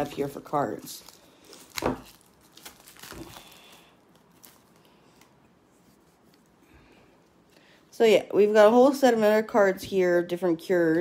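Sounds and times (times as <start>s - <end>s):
cards crinkling rustles: 0.0s - 6.5s.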